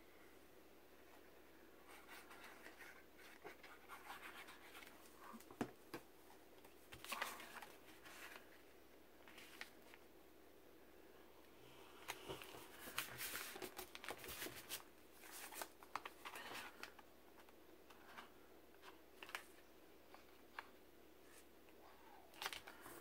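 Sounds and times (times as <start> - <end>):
paper rustling and clicking: 6.6 - 8.5, 12.1 - 20.7, 22.3 - 22.9.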